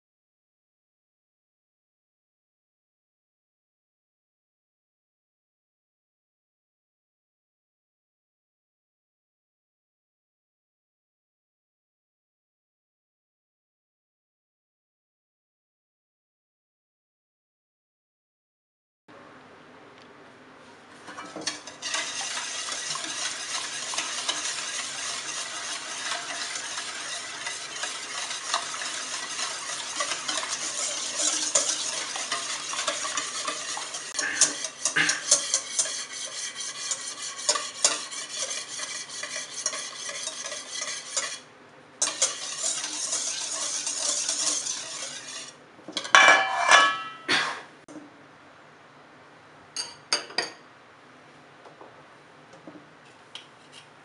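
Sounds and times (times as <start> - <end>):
whisk swishing in metal bowl: 21.0 - 47.0.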